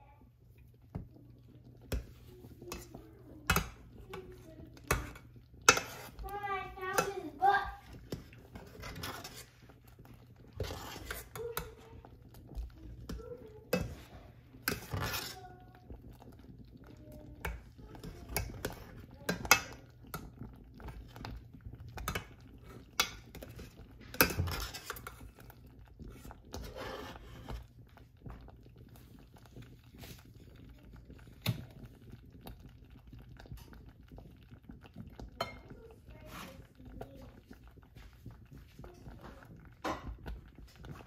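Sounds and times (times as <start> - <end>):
metal spoon scraping a steel pot: 1.9 - 6.3, 8.1 - 9.6, 10.5 - 11.8, 13.7 - 15.4, 23.0 - 25.2, 26.2 - 27.6.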